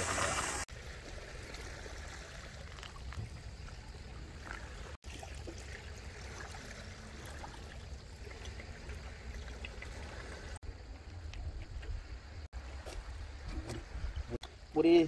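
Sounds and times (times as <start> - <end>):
water trickling onto coffee grounds: 2.1 - 3.4.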